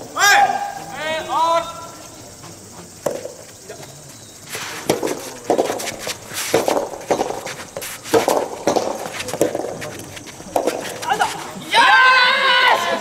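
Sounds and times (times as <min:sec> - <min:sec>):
shoes scuffing on court: 0:01.8 - 0:11.7
rackets hitting tennis ball: 0:02.3 - 0:11.7.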